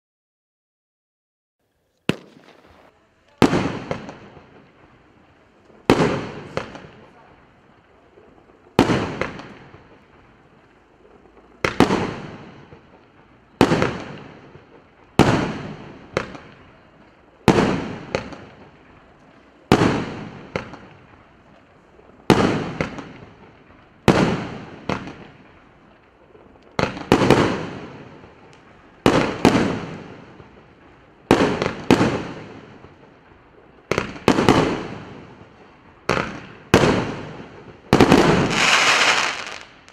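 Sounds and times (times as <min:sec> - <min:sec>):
fireworks bangs: 0:01.8 - 0:39.9.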